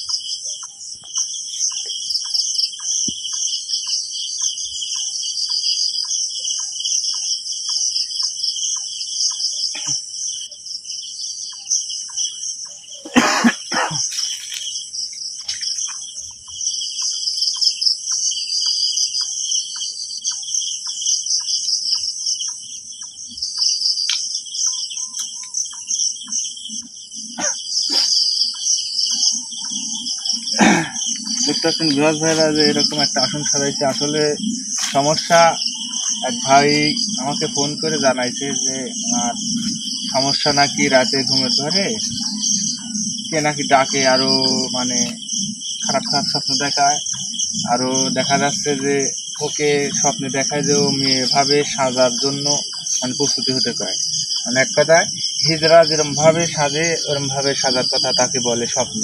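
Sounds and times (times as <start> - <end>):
faint regular ticking: 0.0 - 9.5
crickets trilling: 0.0 - 59.0.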